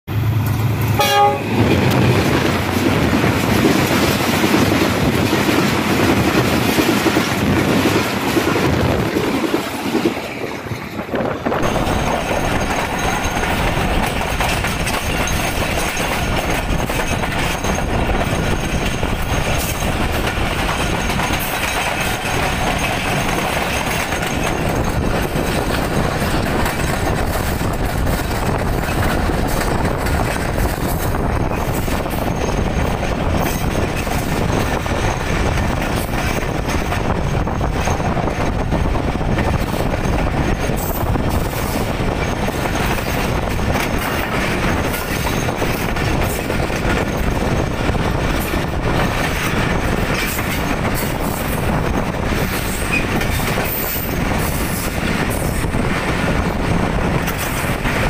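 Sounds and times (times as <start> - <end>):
locomotive engine rumbling: 0.1 - 58.0
train wheels clickety-clack: 0.3 - 58.0
train horn blast: 0.9 - 1.6.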